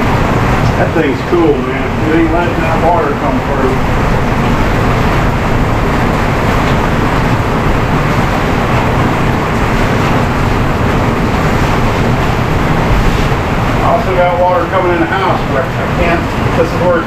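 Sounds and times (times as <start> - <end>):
heavy rain: 0.0 - 17.0.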